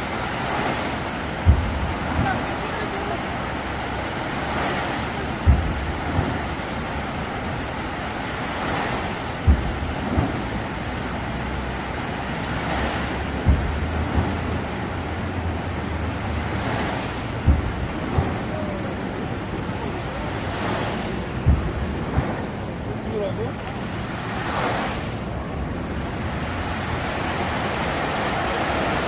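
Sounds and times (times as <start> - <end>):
fountain jets splashing: 0.0 - 29.0
low thump: 1.4 - 2.3, 13.4 - 14.4, 17.4 - 18.7, 20.6 - 22.8.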